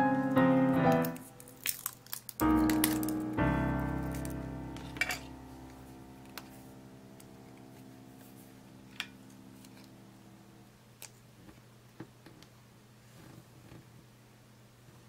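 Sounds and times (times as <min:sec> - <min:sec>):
background music chord: 0:00.0 - 0:01.6, 0:02.4 - 0:10.8.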